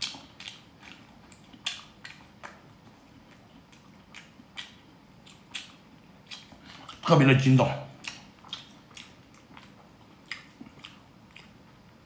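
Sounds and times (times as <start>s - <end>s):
person chewing: 0.0s - 7.1s, 7.9s - 12.0s
wet mouth smacks: 3.7s - 7.0s, 8.0s - 11.6s.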